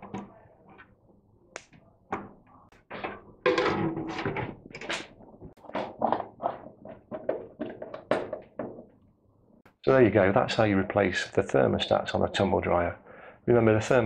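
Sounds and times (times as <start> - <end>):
sheet metal scraping and rattling: 2.9 - 5.2.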